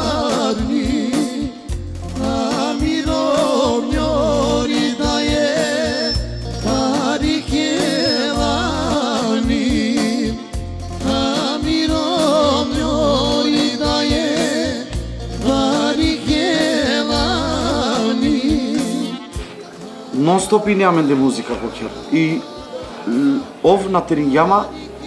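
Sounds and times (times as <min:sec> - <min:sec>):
sustained keyboard bass notes: 0:00.0 - 0:19.3
man singing ornamented melody: 0:00.0 - 0:25.0.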